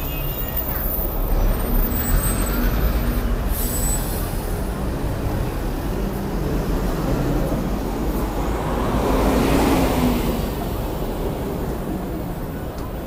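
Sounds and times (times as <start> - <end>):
bus diesel engine idling: 0.0 - 8.8.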